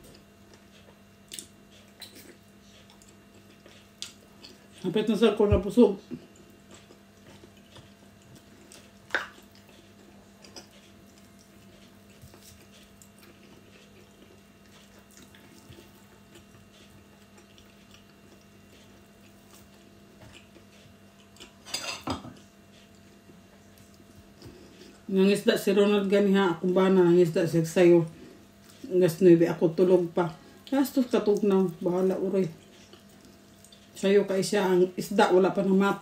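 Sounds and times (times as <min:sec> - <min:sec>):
mouth eating noises: 0:00.0 - 0:04.8, 0:06.0 - 0:21.6
faint steady hum: 0:00.0 - 0:36.0.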